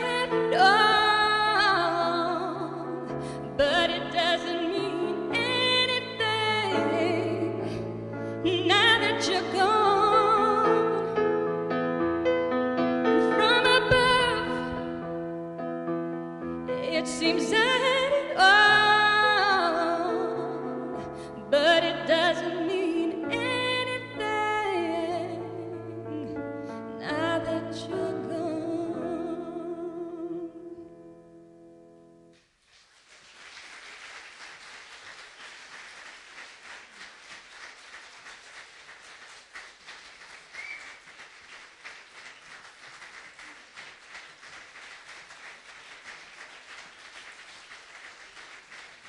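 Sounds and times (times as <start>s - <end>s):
audience applause: 32.6s - 49.0s.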